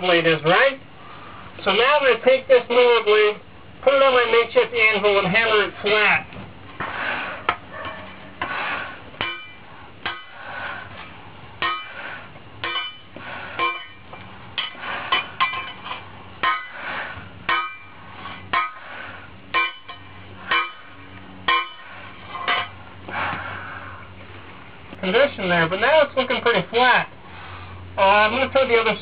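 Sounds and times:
hammer blows on hot steel: 0:06.8 - 0:23.5.

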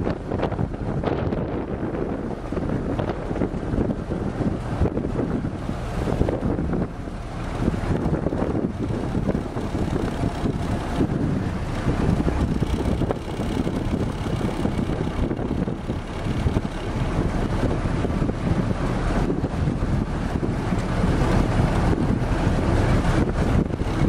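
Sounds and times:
car engine running: 0:00.0 - 0:24.0
wind buffeting microphone: 0:00.0 - 0:24.0.

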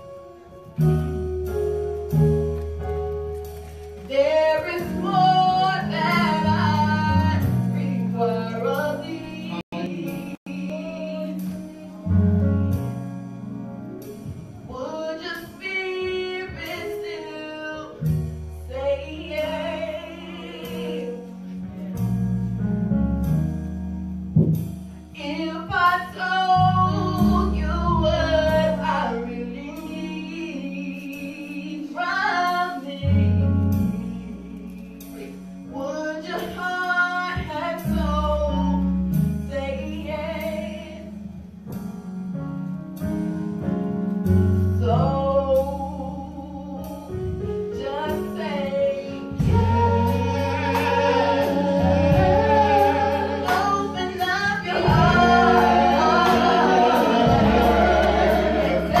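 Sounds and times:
woman singing gospel with vibrato: 0:04.1 - 0:11.9, 0:18.7 - 0:21.3, 0:25.2 - 0:38.8, 0:47.8 - 0:59.0
sustained low instrumental chords: 0:49.3 - 0:59.0.

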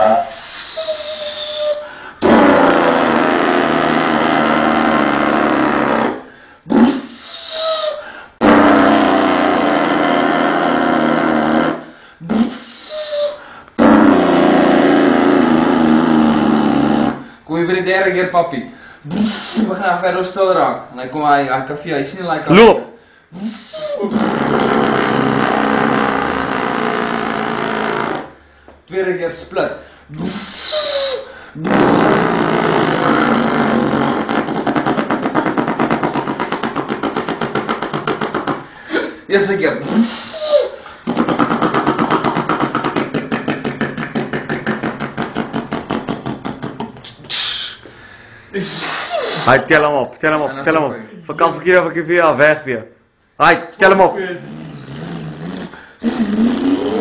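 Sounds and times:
person imitating truck engine: 0:00.0 - 0:17.4, 0:22.5 - 0:28.4, 0:30.1 - 0:47.9, 0:54.2 - 0:57.0.

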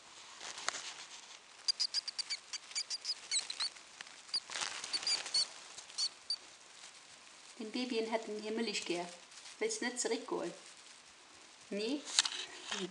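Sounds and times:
rustling in nest bedding: 0:00.0 - 0:12.9
mice squeaking: 0:01.5 - 0:06.4.

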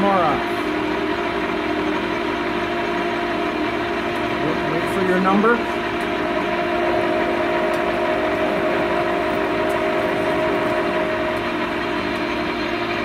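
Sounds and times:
lathe running: 0:00.0 - 0:13.0.

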